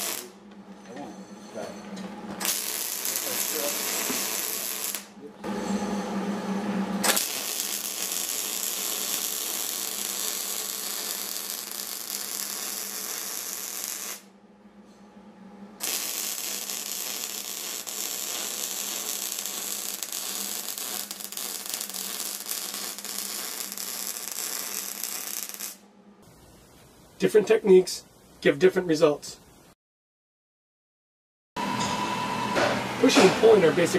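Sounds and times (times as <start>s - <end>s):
welding arc crackling: 0.0s - 0.3s, 2.4s - 5.2s, 7.0s - 14.3s, 15.8s - 25.8s.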